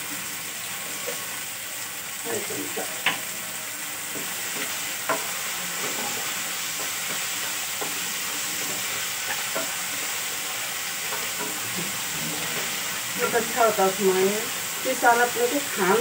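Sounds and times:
vegetables sizzling in a pan: 0:00.0 - 0:16.0
spatula stirring and scraping: 0:04.1 - 0:15.0.

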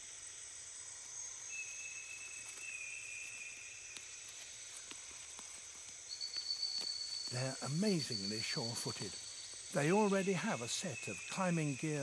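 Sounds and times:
high-pitched insect trilling: 0:00.0 - 0:12.0
faint ticks: 0:02.4 - 0:07.4.

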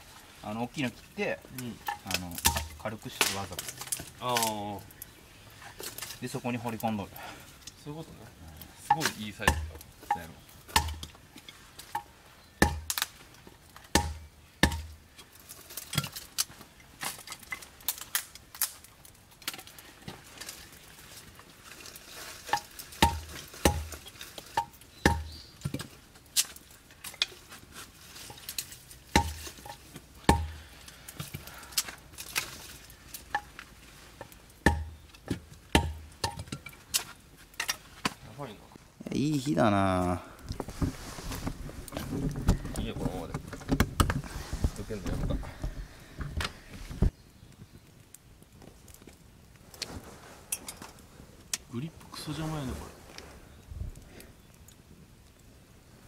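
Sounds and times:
hatchet chopping wood: 0:01.9 - 0:03.4, 0:08.9 - 0:11.1, 0:11.9 - 0:13.0, 0:13.9 - 0:15.0, 0:22.5 - 0:24.0, 0:24.6 - 0:25.9, 0:29.1 - 0:30.6, 0:34.6 - 0:36.6.

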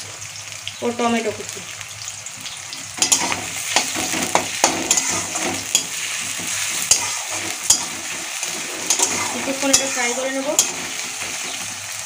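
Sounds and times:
food sizzling in hot oil: 0:00.0 - 0:12.0
metal spatula scraping pan: 0:03.0 - 0:12.0.

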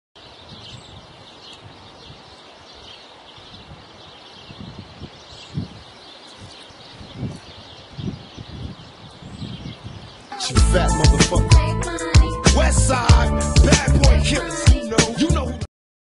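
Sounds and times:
small birds chirping: 0:00.2 - 0:12.2.

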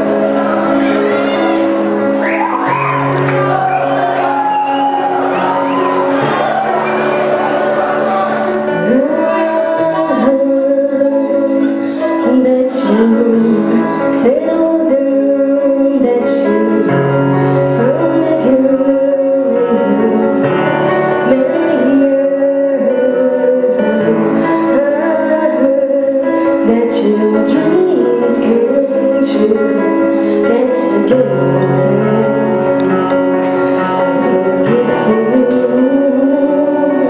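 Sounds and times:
musical accompaniment: 0:00.0 - 0:37.0
woman singing into a microphone: 0:08.6 - 0:37.0.

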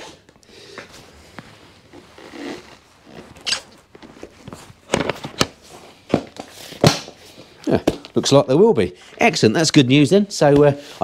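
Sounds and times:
seat rustling and scraping: 0:00.9 - 0:06.8.

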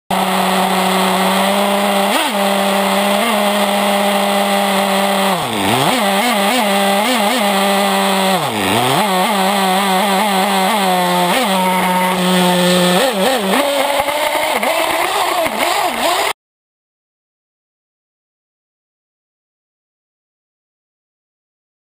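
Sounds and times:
model engine whining at high revs: 0:00.1 - 0:16.4.

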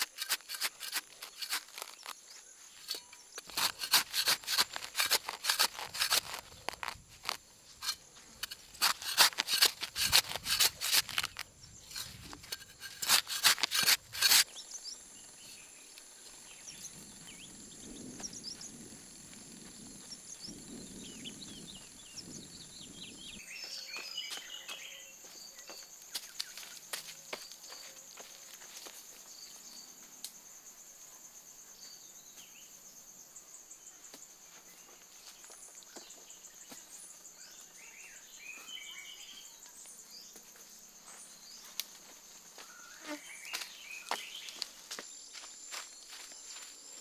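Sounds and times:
bird chirps: 0:20.3 - 0:26.8.

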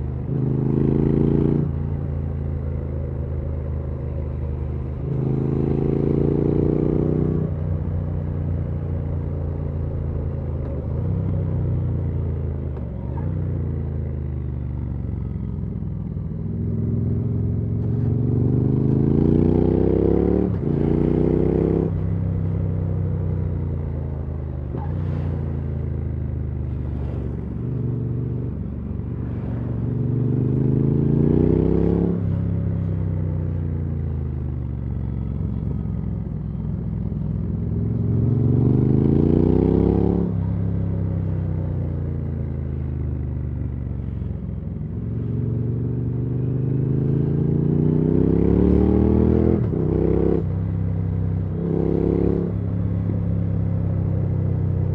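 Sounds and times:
motorcycle engine accelerating: 0:00.0 - 0:54.9
motorcycle engine revs: 0:45.2 - 0:50.5.

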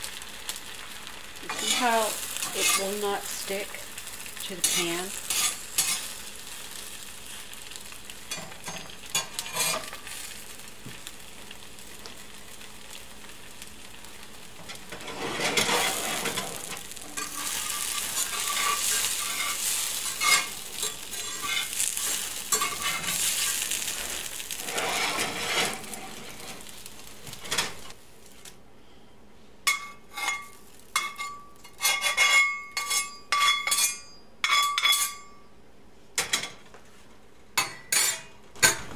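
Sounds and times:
eggs sizzling in a skillet: 0:00.0 - 0:28.5, 0:29.6 - 0:35.2
metal spatula scraping and clinking: 0:01.5 - 0:03.1, 0:04.6 - 0:06.1, 0:08.3 - 0:10.1, 0:14.6 - 0:26.7, 0:29.7 - 0:35.4, 0:37.6 - 0:38.8.

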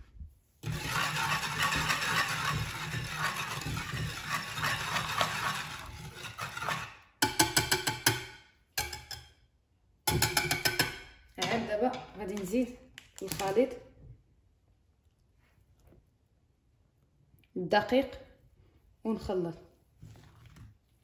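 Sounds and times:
whisk beating against a bowl: 0:00.6 - 0:08.2.

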